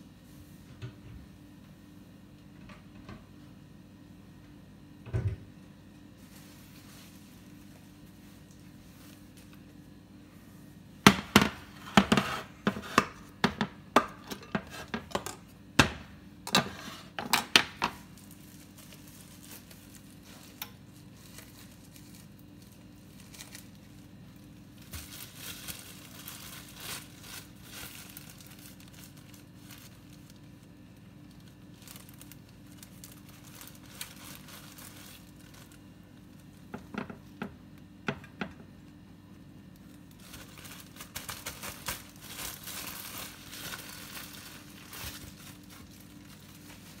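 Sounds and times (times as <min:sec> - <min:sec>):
low steady hum: 0:00.0 - 0:47.0
soft plastic crinkling: 0:05.7 - 0:10.8, 0:17.8 - 0:37.9, 0:38.7 - 0:47.0.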